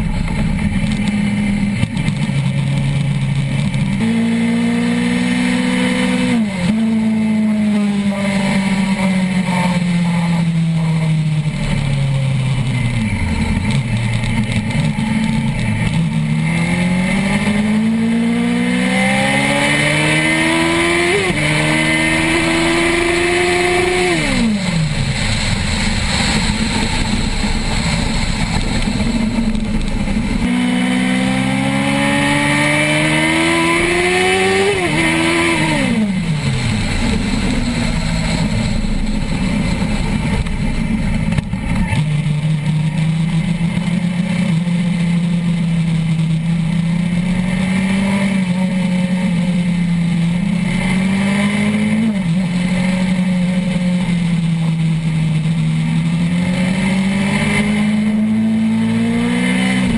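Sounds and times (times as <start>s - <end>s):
motorcycle engine accelerating: 0.0s - 59.9s
wind rush: 21.2s - 30.9s, 32.8s - 42.9s.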